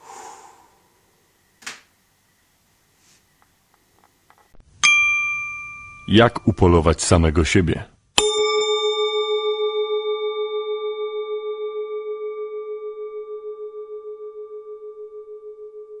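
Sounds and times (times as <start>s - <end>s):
struck bell ringing: 4.8s - 6.8s.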